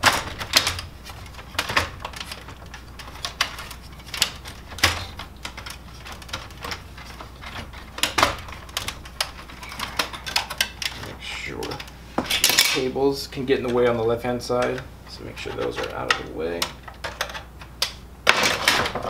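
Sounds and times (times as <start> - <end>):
plastic clicks and knocks: 0.0 - 11.0.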